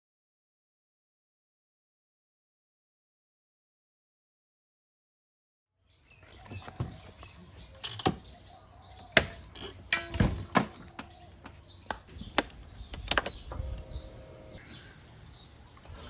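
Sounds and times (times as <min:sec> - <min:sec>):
scooter stand metal clicks and clunks: 0:09.2 - 0:11.2.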